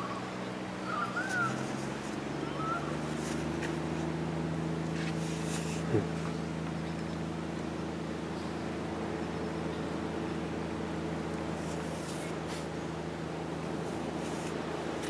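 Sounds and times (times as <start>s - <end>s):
bird chirps: 0.0s - 1.8s
low motor hum: 0.0s - 15.0s.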